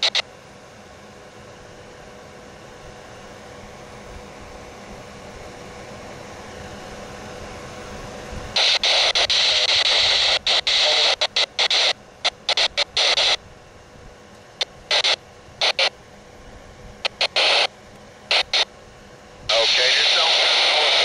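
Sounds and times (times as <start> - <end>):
radio static bursts: 0.0 - 0.2, 8.6 - 13.4, 14.6 - 15.9, 17.0 - 17.7, 18.3 - 18.7, 19.5 - 21.0.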